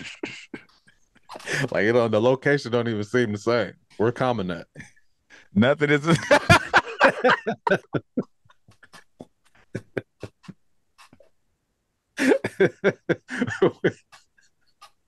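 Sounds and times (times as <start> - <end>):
man laughing: 0.0 - 0.7, 6.0 - 10.5, 12.2 - 14.3.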